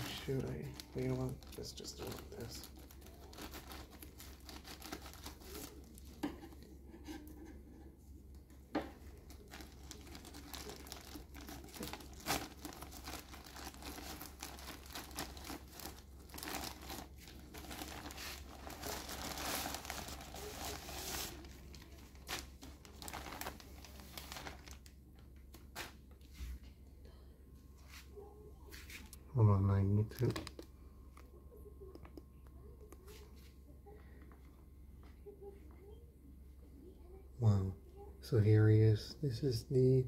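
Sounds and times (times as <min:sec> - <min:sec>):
plastic bag crinkling and tearing: 0:00.0 - 0:06.2, 0:09.0 - 0:25.0, 0:30.0 - 0:30.6
scissors cutting plastic bag: 0:09.9 - 0:21.4.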